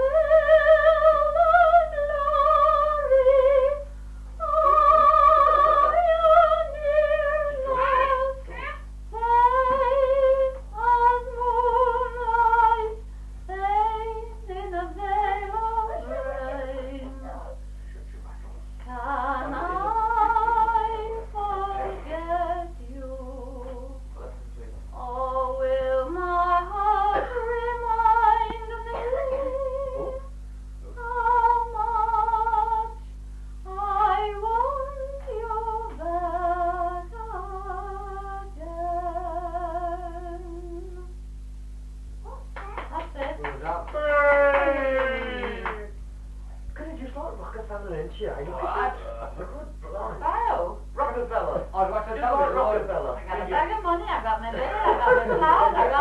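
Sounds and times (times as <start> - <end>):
woman singing with vibrato: 0.0 - 17.6, 18.8 - 24.1, 25.0 - 30.3, 30.9 - 33.0, 33.6 - 41.1, 52.5 - 56.0
low hum: 0.0 - 56.0.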